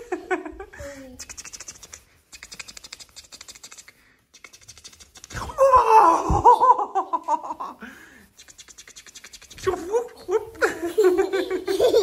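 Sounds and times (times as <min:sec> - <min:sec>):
fingers scratching on blanket: 0:01.2 - 0:05.4, 0:08.3 - 0:09.8
baby laughing: 0:10.3 - 0:12.0.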